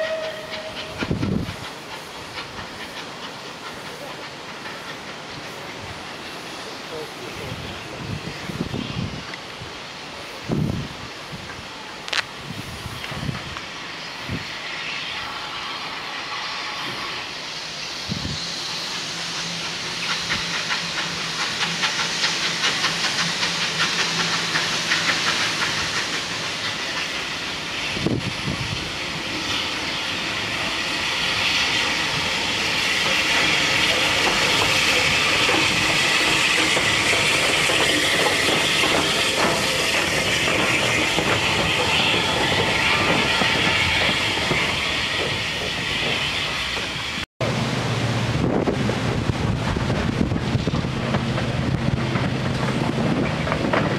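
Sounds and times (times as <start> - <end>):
steam locomotive hissing: 0.0 - 53.9
steam locomotive running in: 0.0 - 53.9.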